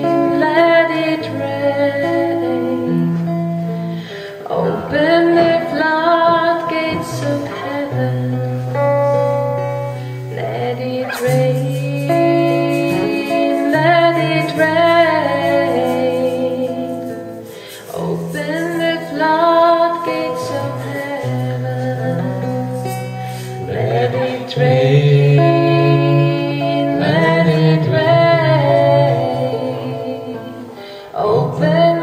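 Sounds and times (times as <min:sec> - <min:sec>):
woman singing: 0:00.0 - 0:03.5, 0:04.4 - 0:32.0
hand drum: 0:04.6 - 0:30.8.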